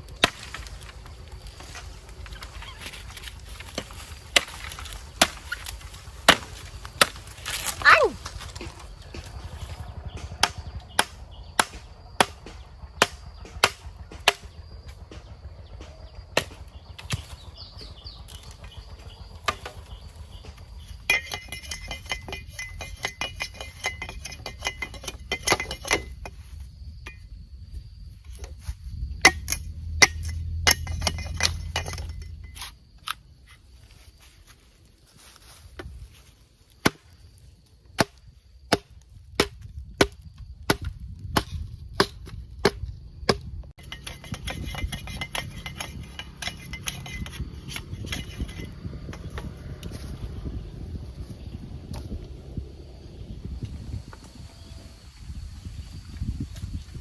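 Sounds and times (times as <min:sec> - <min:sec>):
blade chopping bamboo: 0:02.9 - 0:09.4, 0:10.1 - 0:14.6, 0:29.2 - 0:33.6, 0:36.8 - 0:37.2, 0:38.0 - 0:49.5.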